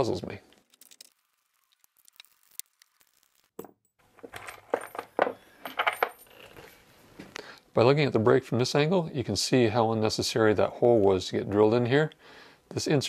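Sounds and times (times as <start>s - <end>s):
metal bolts clinking: 3.6s - 6.7s.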